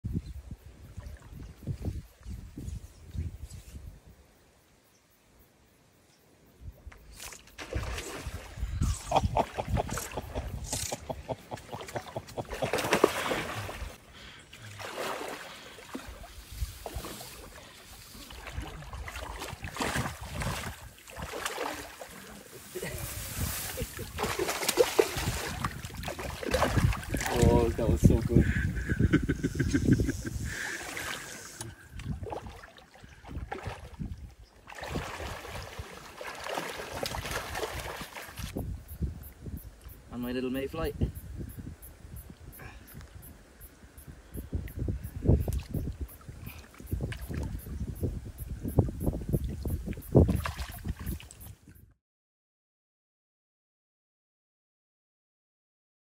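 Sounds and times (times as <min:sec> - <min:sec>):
water sloshing while wading: 0:07.2 - 0:29.1, 0:30.4 - 0:38.6, 0:49.3 - 0:51.6
fish thrashing at the surface: 0:07.3 - 0:08.6, 0:09.2 - 0:14.0, 0:14.7 - 0:17.6, 0:18.2 - 0:23.0, 0:23.7 - 0:27.8, 0:34.7 - 0:38.5.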